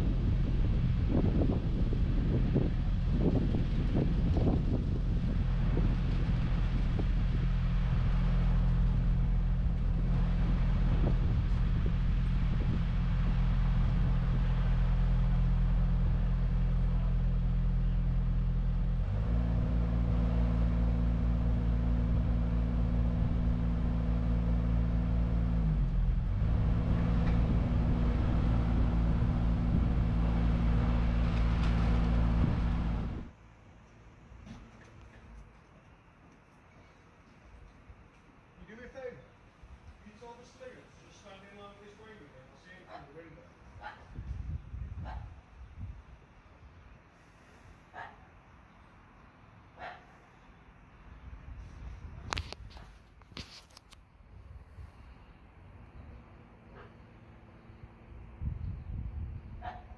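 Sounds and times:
diesel engine running: 0:00.0 - 0:33.4.

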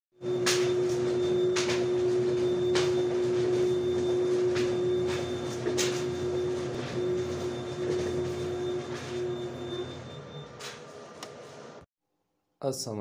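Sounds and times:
photocopier hum: 0:00.2 - 0:11.9.

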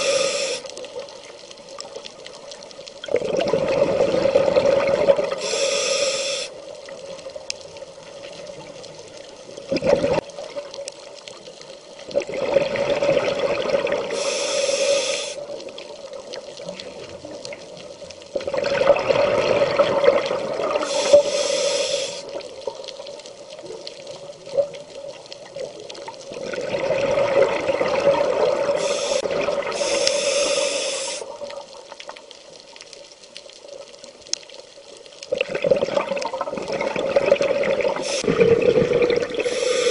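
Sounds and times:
air hissing through regulator: 0:00.0 - 0:00.7, 0:05.4 - 0:06.6, 0:14.1 - 0:15.5, 0:20.8 - 0:22.3, 0:28.7 - 0:31.3, 0:38.0 - 0:38.3, 0:39.4 - 0:39.9
exhaled bubbles underwater: 0:02.8 - 0:05.5, 0:06.9 - 0:10.8, 0:12.0 - 0:14.3, 0:14.9 - 0:21.6, 0:22.2 - 0:32.2, 0:35.3 - 0:39.9.

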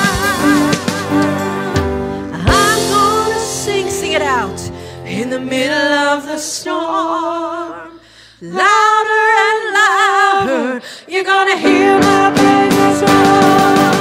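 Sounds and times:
backing music: 0:00.0 - 0:06.1, 0:11.6 - 0:14.0
person singing with vibrato: 0:00.0 - 0:14.0.

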